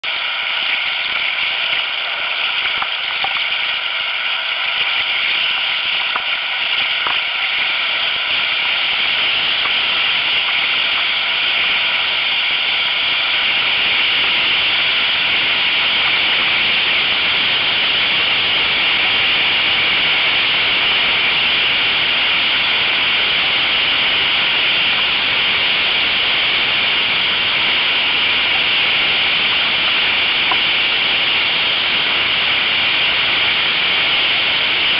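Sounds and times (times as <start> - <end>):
whitewater rushing: 0.0 - 34.9.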